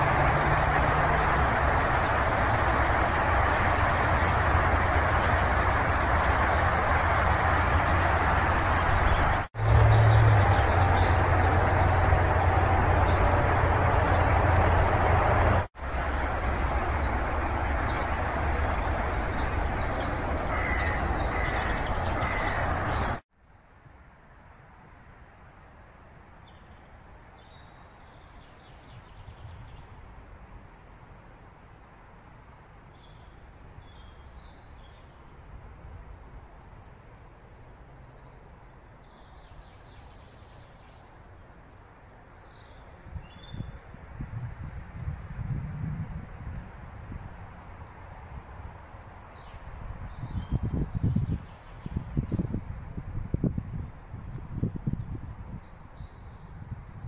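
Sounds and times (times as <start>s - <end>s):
loud rumble with low hum: 0.0s - 23.2s
birds chirping and calling: 16.6s - 23.2s.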